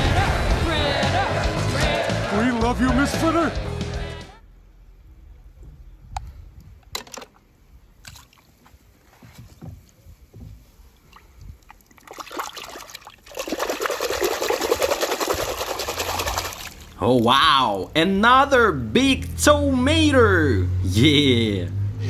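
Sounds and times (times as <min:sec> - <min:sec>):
water sloshing and splashing: 0:08.0 - 0:08.9, 0:10.7 - 0:17.0
water drips and splashes: 0:10.9 - 0:17.0.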